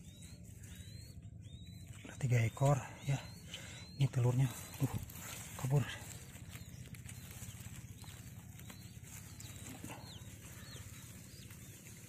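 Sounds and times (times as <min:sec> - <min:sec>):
quail chicks peeping faintly: 0:00.0 - 0:12.0
hand rustling through grass: 0:04.0 - 0:12.0.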